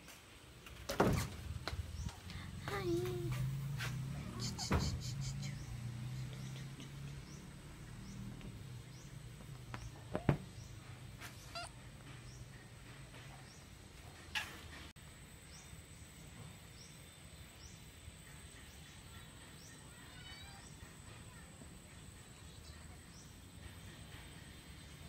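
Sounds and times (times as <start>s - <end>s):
bird chirping: 3.4s - 21.4s.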